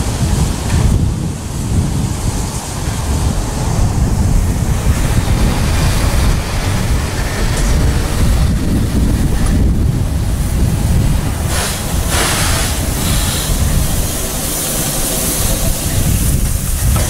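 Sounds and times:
steam hissing: 0:00.0 - 0:17.0
steam locomotive rumbling: 0:00.0 - 0:17.0.

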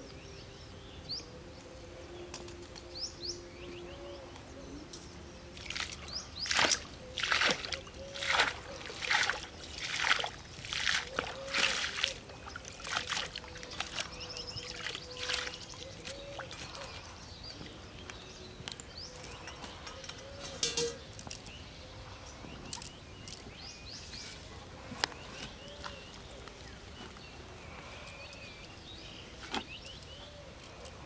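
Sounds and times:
pond water splashing: 0:05.5 - 0:18.2.

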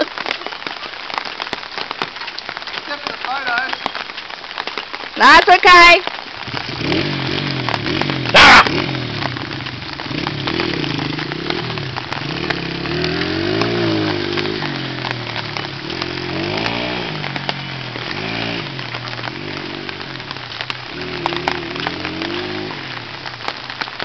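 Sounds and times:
rain hissing: 0:00.0 - 0:24.0
dirt bike engine revving: 0:06.4 - 0:23.4.

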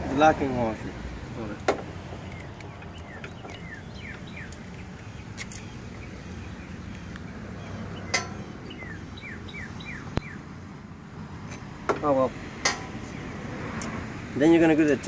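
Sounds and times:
songbird whistling: 0:02.3 - 0:04.6, 0:05.2 - 0:10.5.

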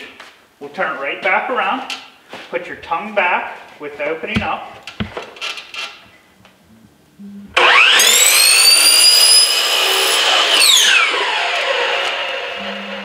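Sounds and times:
miter saw motor whining: 0:07.6 - 0:13.0.

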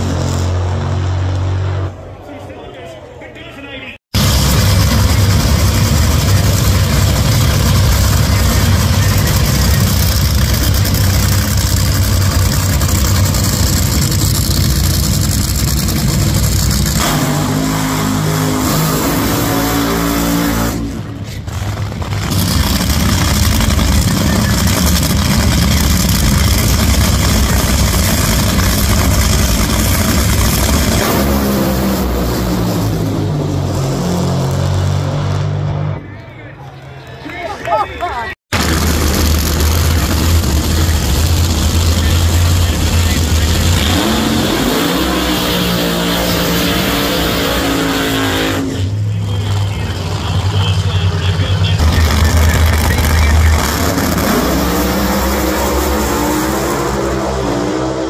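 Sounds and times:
dragster engine revving loudly: 0:04.2 - 0:36.0, 0:38.5 - 0:58.0.

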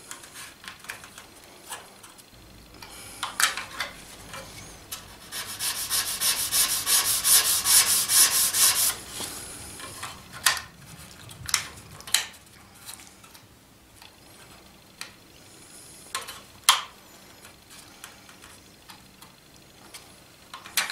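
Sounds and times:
sanding block rubbing wood: 0:05.1 - 0:09.0.

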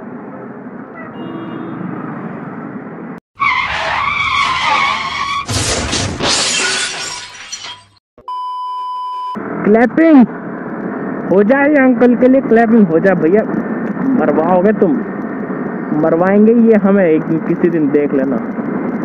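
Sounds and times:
traffic noise: 0:00.0 - 0:05.5, 0:09.4 - 0:19.0
tyre screech: 0:03.4 - 0:05.8
glass breaking: 0:05.4 - 0:08.0
steady high test beep: 0:08.2 - 0:09.4.

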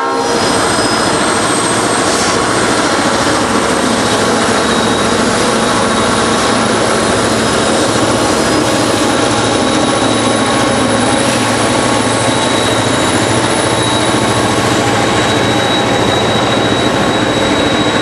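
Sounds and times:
diesel locomotive engine drone: 0:00.0 - 0:18.0
train rumbling on rails: 0:00.0 - 0:18.0.

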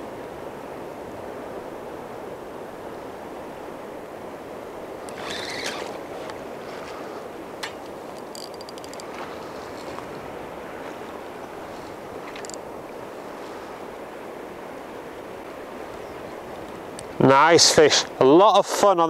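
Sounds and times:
rushing tidal current: 0:00.0 - 0:19.0
fishing reel clicking: 0:05.1 - 0:06.0, 0:08.1 - 0:09.1, 0:12.4 - 0:12.6.

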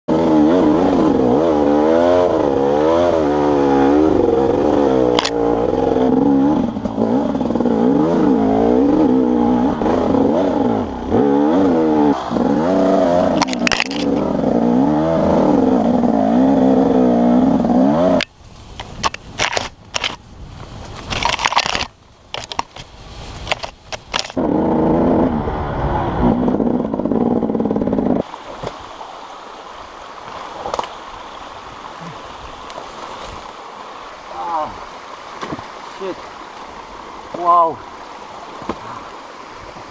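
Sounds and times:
motorcycle engine revving: 0:00.1 - 0:18.3, 0:23.5 - 0:28.2.

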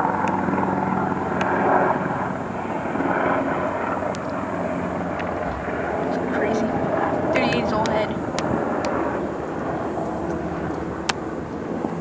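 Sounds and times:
engine drone: 0:00.0 - 0:12.0.

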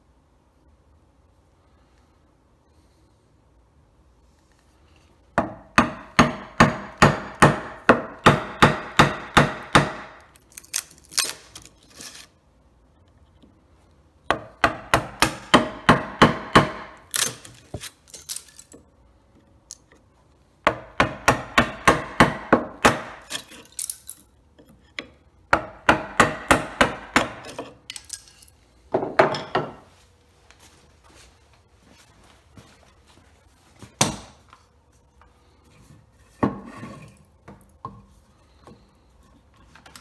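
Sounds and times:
wooden mallet striking chisel: 0:05.4 - 0:10.2, 0:20.7 - 0:23.3, 0:25.5 - 0:27.6.

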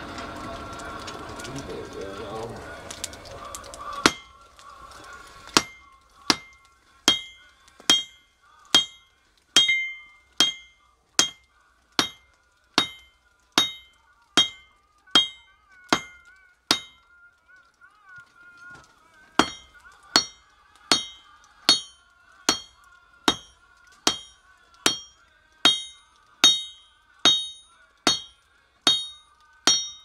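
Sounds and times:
hammer striking steel on anvil: 0:04.0 - 0:04.3, 0:05.6 - 0:09.0, 0:09.6 - 0:11.4, 0:12.0 - 0:17.0, 0:19.4 - 0:30.0.

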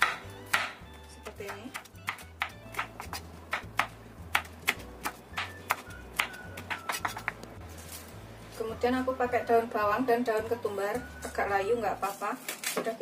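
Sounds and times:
knife tapping on wooden board: 0:01.7 - 0:07.4.

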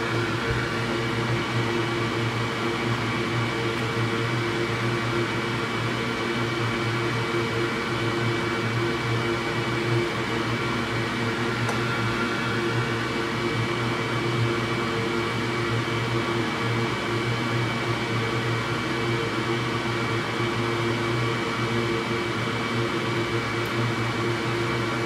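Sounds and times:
machine hum: 0:00.0 - 0:05.9, 0:09.2 - 0:14.8.

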